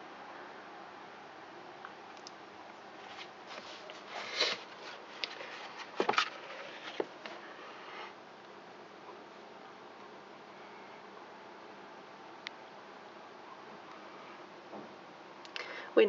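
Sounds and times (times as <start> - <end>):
paper rustling: 3.0 - 7.4.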